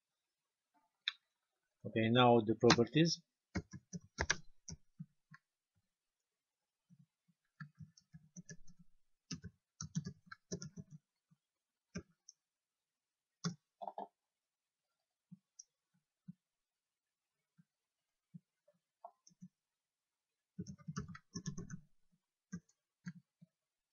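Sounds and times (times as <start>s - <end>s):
computer keyboard typing: 3.6s - 4.8s, 7.6s - 11.0s, 20.6s - 21.9s.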